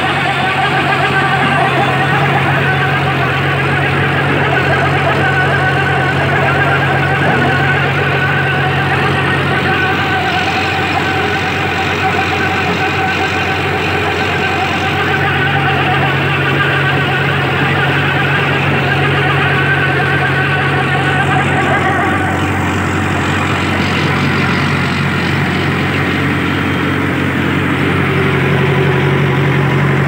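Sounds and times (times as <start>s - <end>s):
tractor engine running under load: 0.0s - 30.0s.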